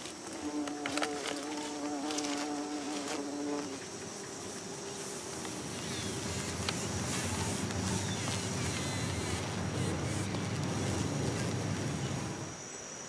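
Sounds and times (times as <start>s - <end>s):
bees buzzing: 0.0s - 12.7s
short crackles: 5.2s - 12.5s.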